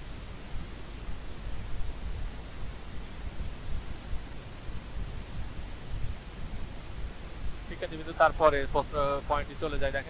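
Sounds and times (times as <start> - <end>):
hiss: 0.0 - 10.0
low uneven rumble: 1.1 - 10.0.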